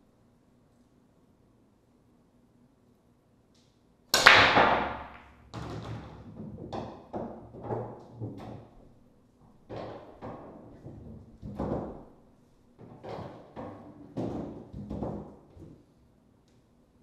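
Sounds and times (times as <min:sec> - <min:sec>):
cue ball cracking into racked balls: 0:04.1 - 0:15.9
pool balls clattering and knocking: 0:04.2 - 0:16.0.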